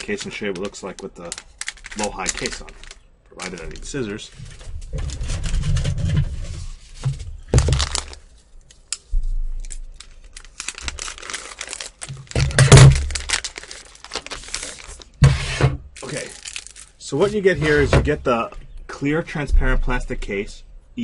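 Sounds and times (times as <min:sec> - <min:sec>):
scissors cutting plastic packaging: 0:00.0 - 0:03.8, 0:07.6 - 0:15.2
plastic rustling and crackling: 0:00.0 - 0:18.8.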